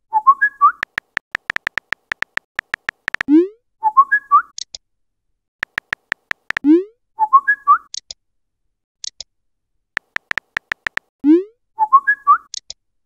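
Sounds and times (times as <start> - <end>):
phone keyboard typing clicks: 0.8 - 3.3, 5.6 - 6.6, 10.0 - 11.1.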